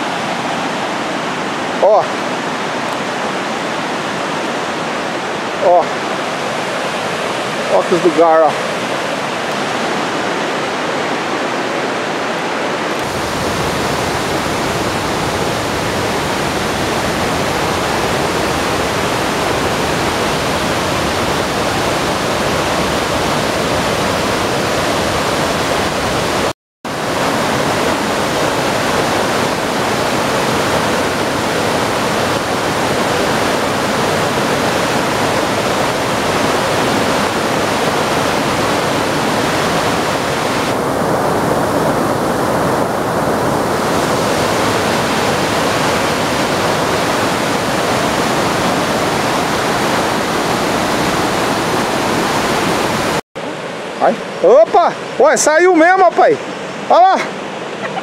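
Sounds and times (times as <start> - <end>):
river rushing over boulders: 0.0 - 58.0.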